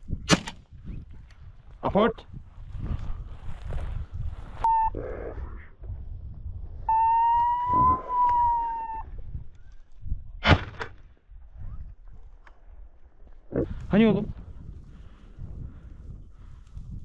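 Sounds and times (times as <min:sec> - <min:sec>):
wind rumble on microphone: 0:00.0 - 0:17.0
dog whining: 0:06.9 - 0:09.0.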